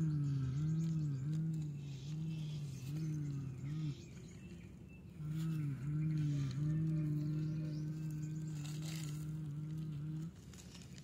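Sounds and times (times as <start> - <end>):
low voice-like drone: 5.2 - 10.5.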